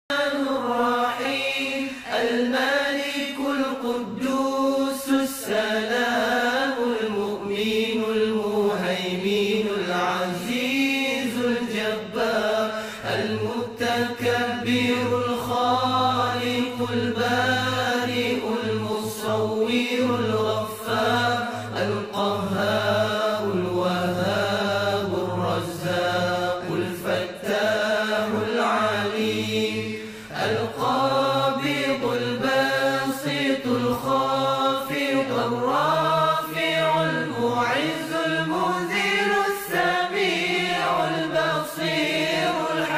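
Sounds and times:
person chanting: 0.1 - 42.9.

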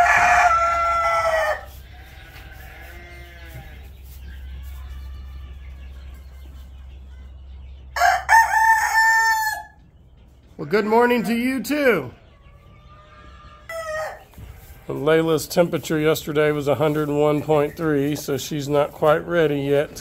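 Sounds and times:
rooster crowing: 0.0 - 1.7, 8.0 - 9.8.

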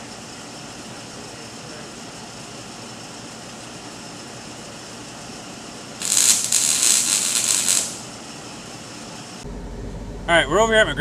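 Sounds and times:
low background hum: 0.0 - 11.0
welding arc crackling: 6.0 - 8.2.

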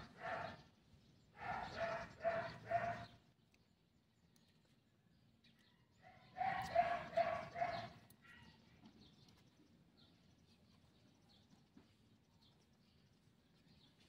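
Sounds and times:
dog barking: 0.0 - 0.6, 1.4 - 3.2, 6.1 - 8.5.

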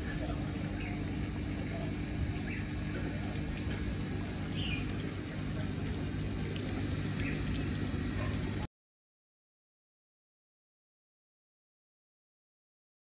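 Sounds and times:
low mechanical hum: 0.0 - 8.7.

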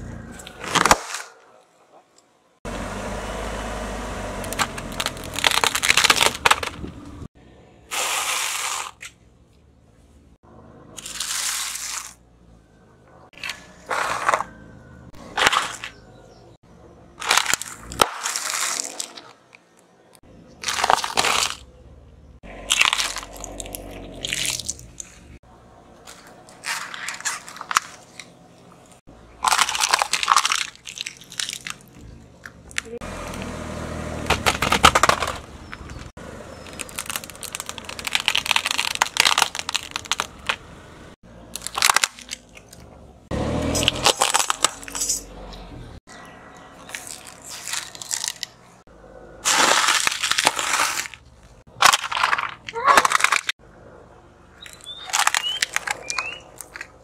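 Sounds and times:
tyre crushing objects: 0.4 - 1.4, 4.4 - 7.2, 15.2 - 16.0, 34.2 - 40.7, 43.4 - 45.3, 49.4 - 53.6.

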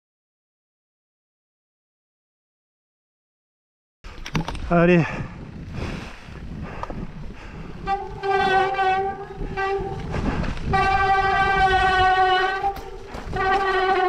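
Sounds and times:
bike disc brakes honking: 7.8 - 14.0.

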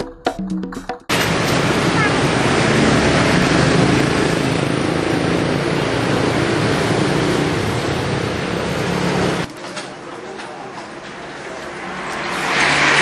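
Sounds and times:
road traffic passing: 1.1 - 13.0.

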